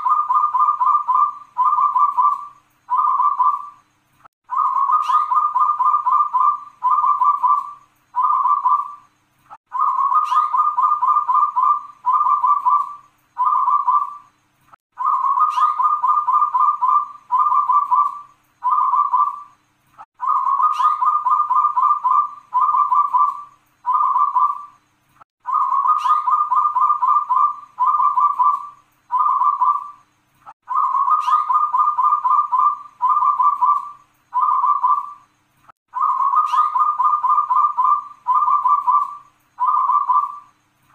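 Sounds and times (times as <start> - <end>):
dove cooing: 0.0 - 3.8, 4.5 - 9.1, 9.7 - 14.3, 15.0 - 19.5, 20.2 - 24.8, 25.4 - 30.0, 30.6 - 35.2, 35.9 - 40.5.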